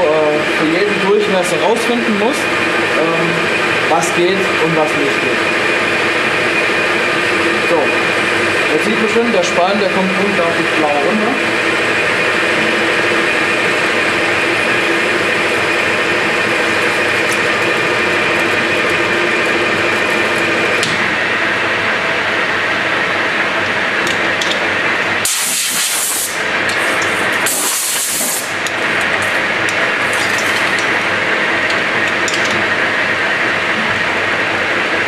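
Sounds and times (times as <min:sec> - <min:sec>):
metal lathe cutting with gear whine: 0:00.0 - 0:25.2
compressed air blow gun hissing: 0:25.2 - 0:28.5.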